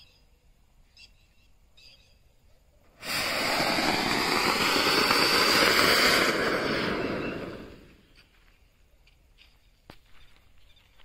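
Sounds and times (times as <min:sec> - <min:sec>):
firework fountain rushing hiss: 0:02.9 - 0:08.2.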